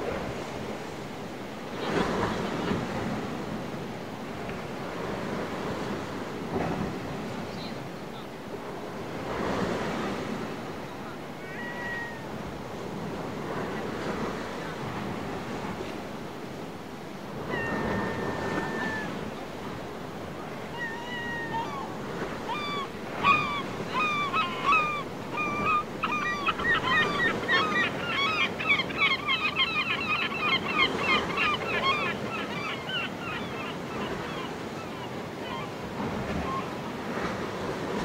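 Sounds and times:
sea surf: 0.0 - 38.0
birds calling: 21.5 - 35.8.

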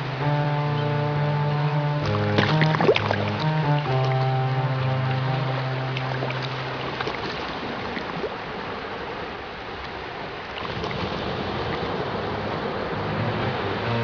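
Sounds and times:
soft background music: 0.0 - 7.0, 12.0 - 14.0
sea waves washing: 0.0 - 14.0.

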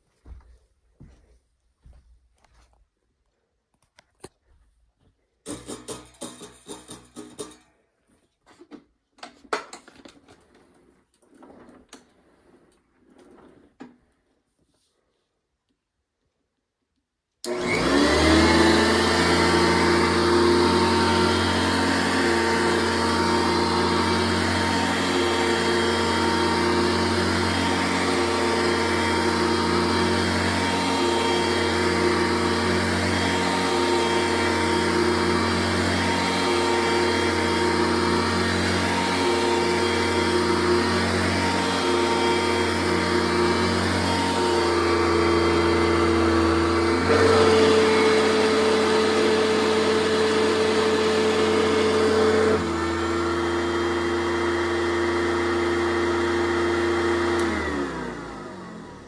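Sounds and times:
vacuum cleaner running on carpet: 17.4 - 59.0.

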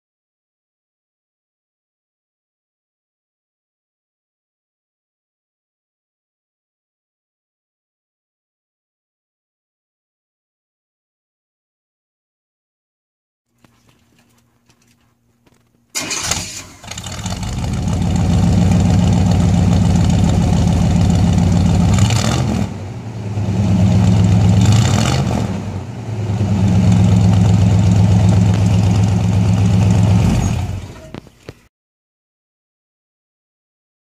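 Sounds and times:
engine starting and idling: 15.9 - 22.8, 26.5 - 31.5.

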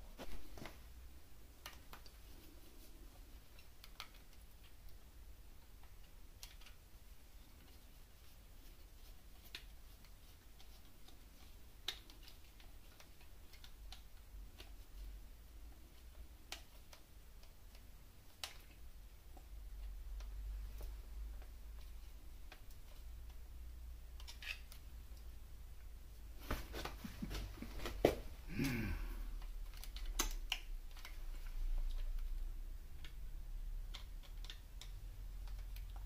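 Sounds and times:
sharp clicks and light taps: 15.7 - 25.9, 29.4 - 36.0.

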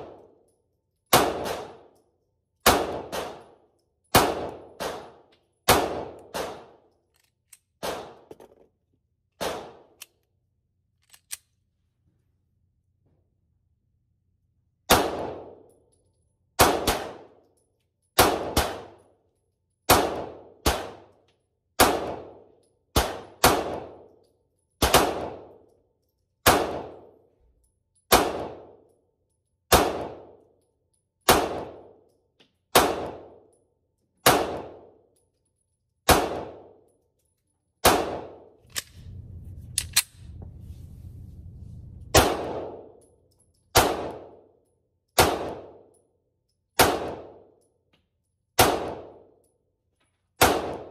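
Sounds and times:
pistol shots: 1.1 - 1.9, 2.6 - 3.5, 4.1 - 6.8, 7.8 - 8.3, 9.4 - 10.0, 14.9 - 15.6, 16.6 - 17.3, 18.2 - 19.0, 19.9 - 21.1, 21.8 - 22.4, 23.0 - 24.0, 24.8 - 25.5, 26.4 - 27.1, 28.1 - 28.8, 29.7 - 30.3, 31.3 - 31.9, 32.7 - 33.4, 34.2 - 34.9, 36.1 - 36.7, 37.8 - 39.0, 42.1 - 43.0, 43.7 - 44.4, 45.2 - 45.8, 46.8 - 47.4, 48.6 - 49.2, 50.4 - 50.9.

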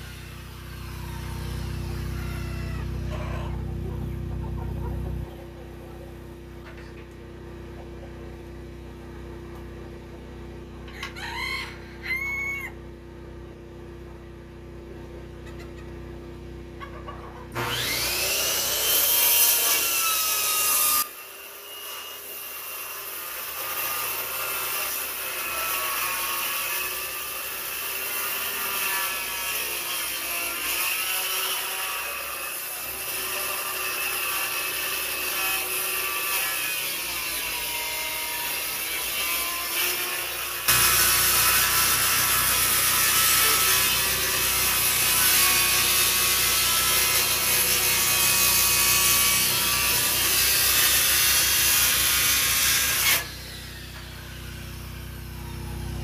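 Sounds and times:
circular saw cutting wood: 0.0 - 8.1, 17.5 - 56.0
chicken clucking: 1.9 - 7.1, 15.4 - 16.0, 16.8 - 17.6.

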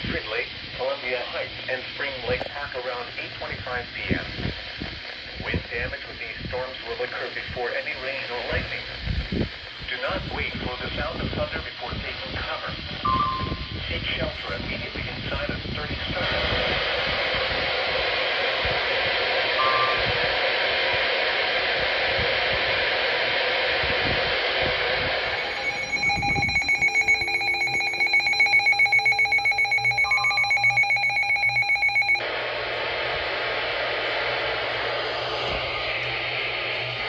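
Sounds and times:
radio static hiss: 0.0 - 13.0
rapidly pulsing high alarm beep: 13.1 - 13.8, 19.6 - 20.2, 25.3 - 32.2.

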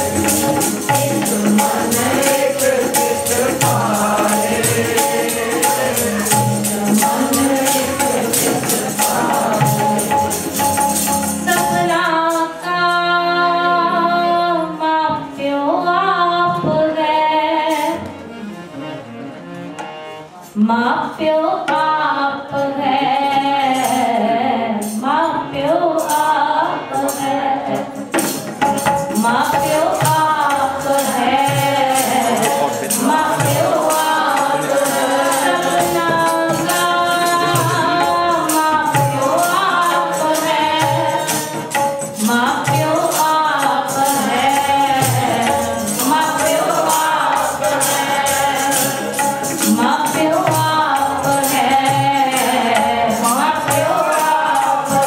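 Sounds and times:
high percussion beat: 0.0 - 12.1, 28.0 - 55.0
voices singing: 0.0 - 12.4, 29.2 - 55.0
harmoniums: 0.0 - 55.0
tabla: 0.0 - 55.0.

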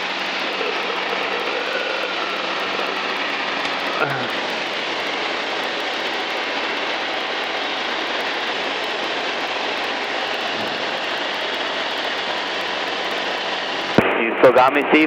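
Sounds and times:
light airplane engine drone: 0.0 - 15.0.

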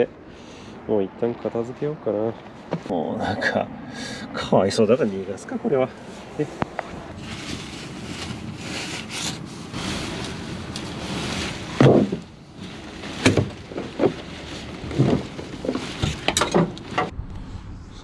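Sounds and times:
tent fabric rustling: 7.1 - 17.1
tent poles knocking and thumping: 11.8 - 12.3, 13.2 - 17.1.

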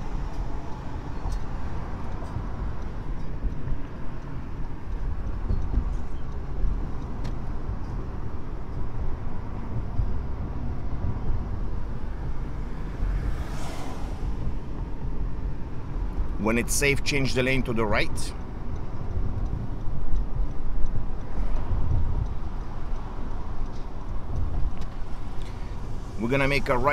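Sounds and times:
car interior road rumble: 0.0 - 26.9.

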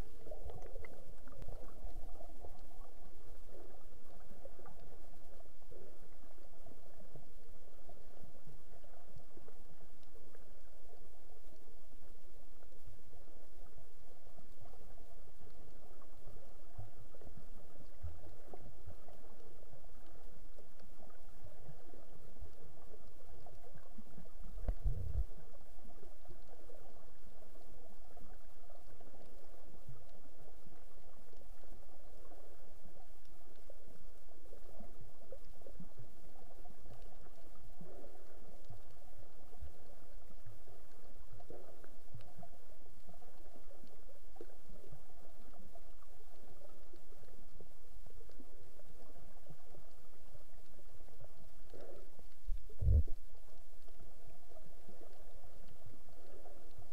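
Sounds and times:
muffled underwater rumble: 0.0 - 56.9
soft low thumps: 24.6 - 25.3, 52.5 - 53.2.

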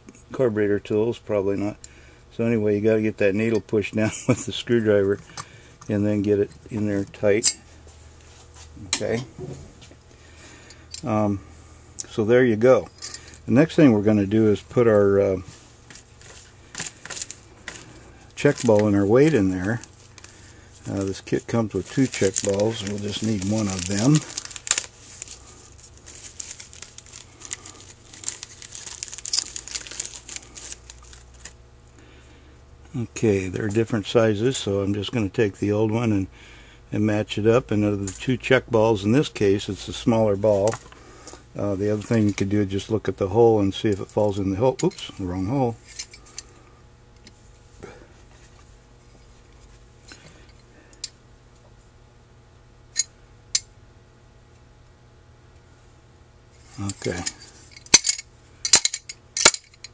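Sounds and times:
handling noise: 15.4 - 31.6
plastic bag crinkling: 16.2 - 31.6.

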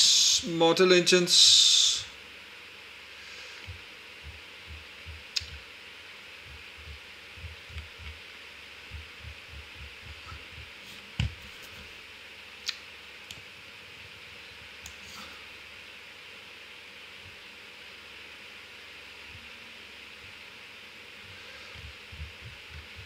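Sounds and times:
steady hiss: 0.0 - 23.0
mouse scrolling thumps: 6.4 - 8.2.

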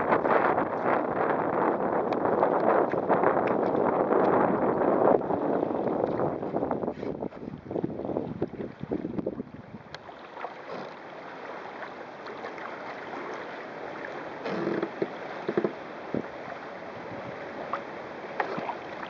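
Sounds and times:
choppy water along hull: 0.0 - 19.0
wave slap: 17.1 - 19.0.

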